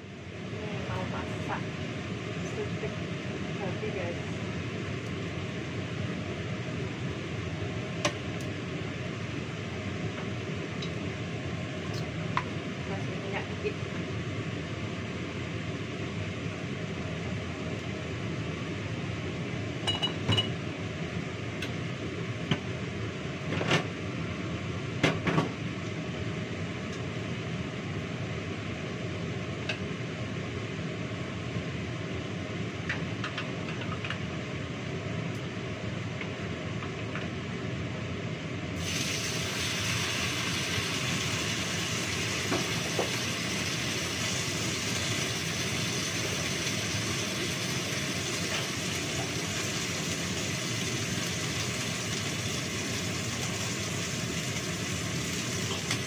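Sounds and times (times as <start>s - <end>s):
kitchen background noise: 19.8s - 20.8s, 32.8s - 34.4s, 38.8s - 56.0s
glass and dishes clinking: 19.9s - 20.6s
loud steady hiss: 38.8s - 56.0s.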